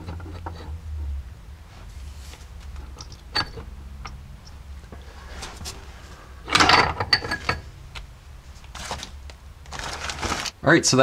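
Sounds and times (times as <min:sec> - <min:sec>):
metal parts clinking and rattling: 0:02.7 - 0:04.6, 0:06.4 - 0:07.6.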